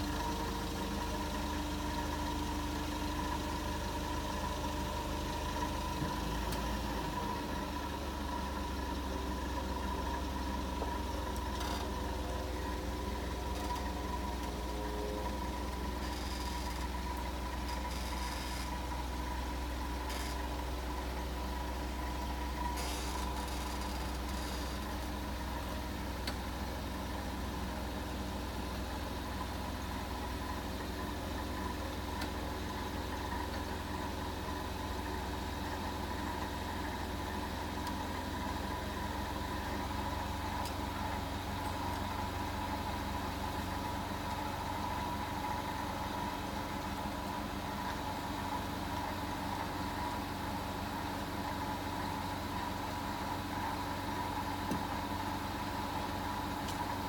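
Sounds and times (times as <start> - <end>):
forklift engine idling: 0.0 - 57.0.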